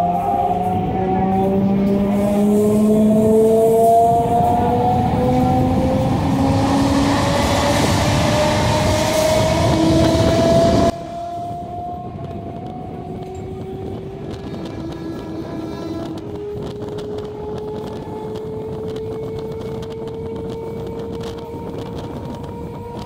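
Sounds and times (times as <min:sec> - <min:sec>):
train running noise: 0:00.0 - 0:23.0
train traction motor whine: 0:00.0 - 0:23.0.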